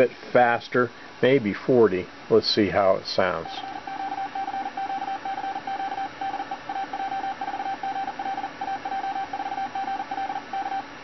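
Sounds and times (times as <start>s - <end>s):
fast morse code beeping: 3.4s - 10.9s.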